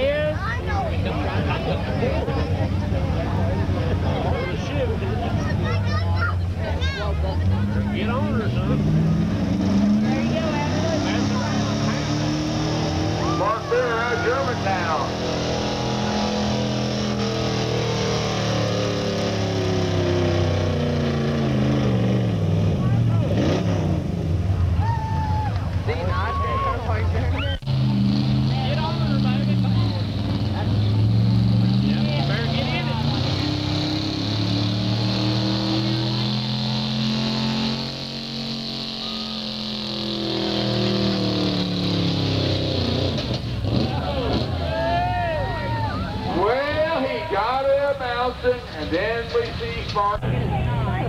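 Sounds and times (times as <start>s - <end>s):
truck engine at full throttle: 0.0s - 51.0s
pickup truck engine under load: 26.9s - 44.9s.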